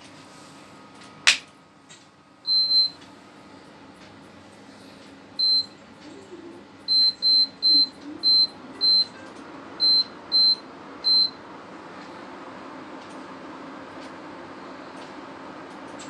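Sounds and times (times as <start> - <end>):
short high-pitched beeps: 2.5 - 3.0, 5.4 - 5.7, 6.9 - 9.2, 9.8 - 11.3.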